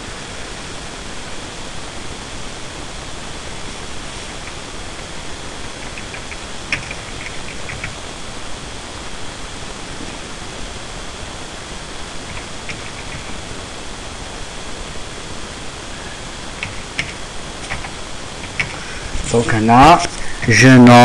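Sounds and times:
steady hiss: 0:00.0 - 0:21.0
computer keyboard keystrokes: 0:05.8 - 0:08.0, 0:12.3 - 0:13.3, 0:16.6 - 0:18.8.

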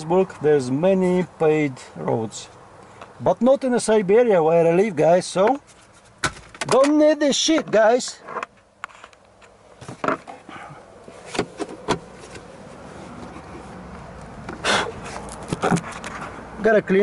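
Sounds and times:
plastic panel scraping: 0:15.0 - 0:16.4.

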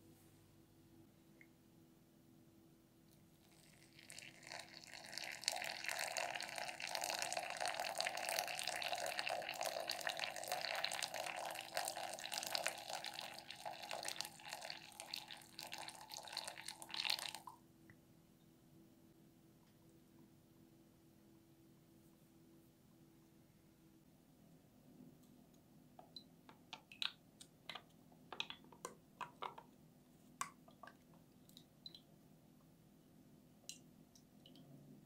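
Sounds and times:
water trickling into a mug: 0:03.1 - 0:17.6.

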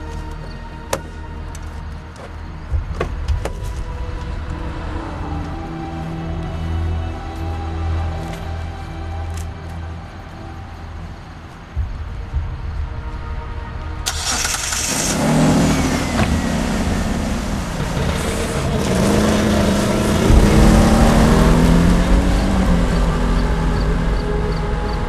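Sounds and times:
car engine starting and revving: 0:14.0 - 0:25.0.

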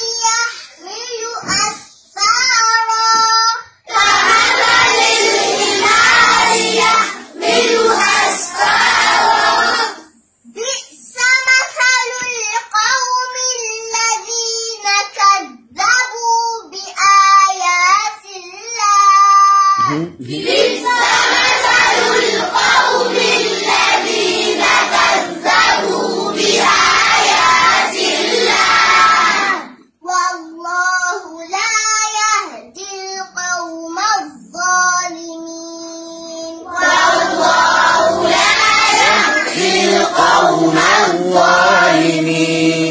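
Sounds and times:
girl chanting recitation: 0:00.0 - 0:07.3, 0:09.7 - 0:23.6, 0:29.3 - 0:37.4.

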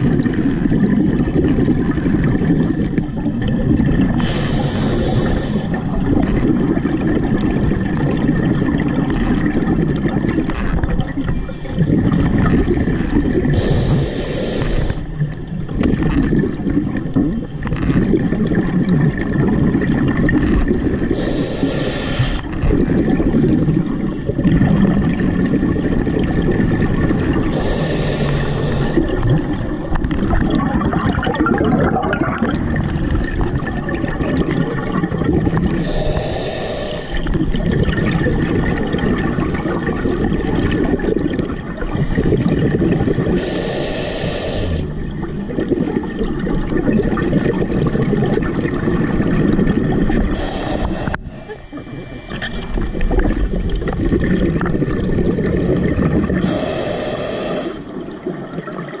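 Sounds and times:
exhaled bubbles underwater: 0:00.0 - 0:59.0
regulator hissing inhalation: 0:04.2 - 0:05.8, 0:13.6 - 0:15.1, 0:21.2 - 0:22.5, 0:27.5 - 0:29.1, 0:35.8 - 0:37.3, 0:43.4 - 0:45.0, 0:50.3 - 0:53.0, 0:56.4 - 0:57.9.

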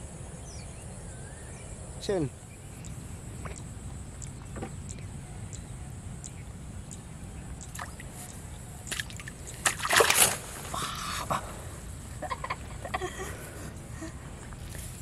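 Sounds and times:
splashing in shallow water: 0:07.6 - 0:11.0.

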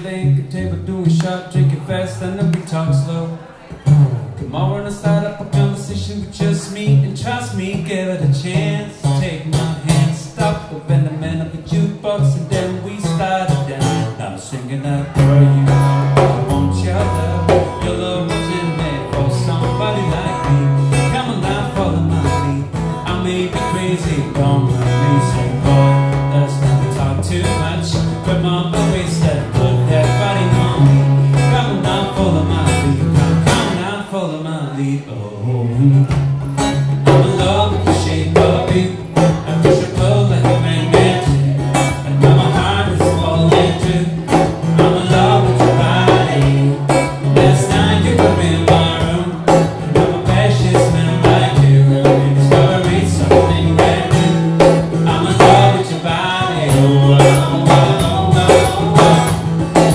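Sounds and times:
acoustic guitar strumming: 0:00.0 - 0:59.9
hand drum beat: 0:15.2 - 0:33.8, 0:36.0 - 0:59.9.

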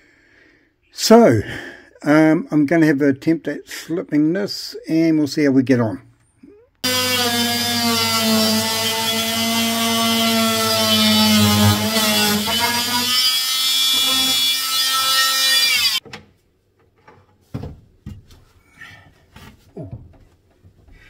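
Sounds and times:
power tool cutting timber: 0:06.8 - 0:16.0.

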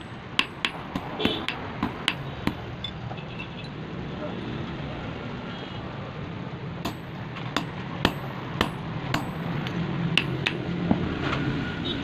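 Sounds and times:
hammer striking chisel on steel: 0:00.0 - 0:03.0, 0:06.8 - 0:10.7.

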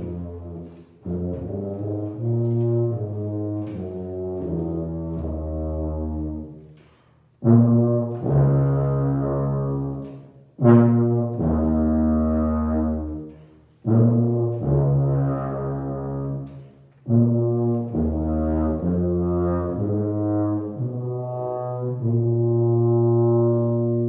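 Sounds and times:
tuba low notes: 0:00.0 - 0:24.0
player breathing: 0:06.7 - 0:07.4.

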